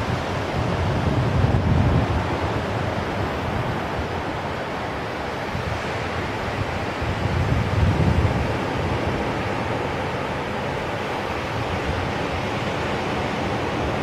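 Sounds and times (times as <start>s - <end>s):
surf breaking on beach: 0.0s - 14.0s
wind buffeting microphone: 0.0s - 14.0s.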